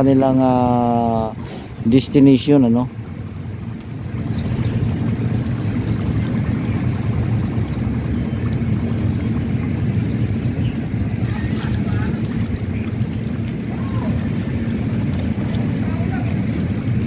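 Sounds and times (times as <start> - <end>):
low rumbling noise: 0.0 - 17.0
faint hum: 0.6 - 17.0.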